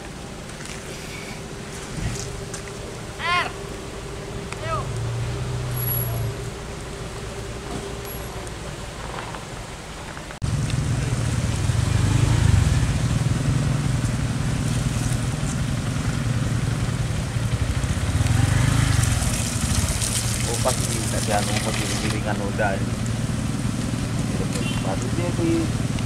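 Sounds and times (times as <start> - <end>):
low hum: 0.0 - 20.6
vehicle engine running: 0.0 - 26.0.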